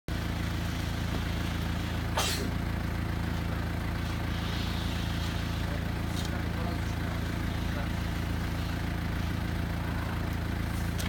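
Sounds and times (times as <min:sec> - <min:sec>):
vehicle engine idling: 0:00.1 - 0:11.0.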